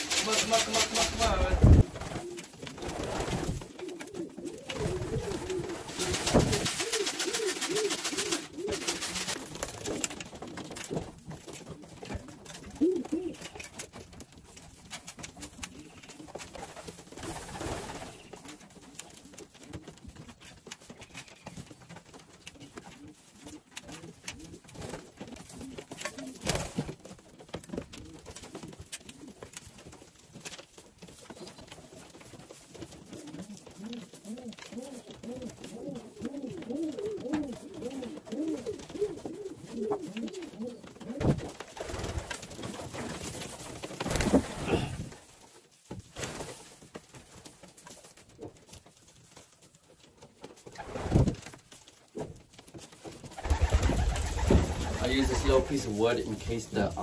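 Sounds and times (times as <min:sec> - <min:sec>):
pigeons cooing: 0:00.0 - 0:10.3, 0:11.4 - 0:13.7, 0:33.0 - 0:42.2, 0:53.4 - 0:56.9
birds pecking grain from metal trough: 0:00.0 - 0:57.0.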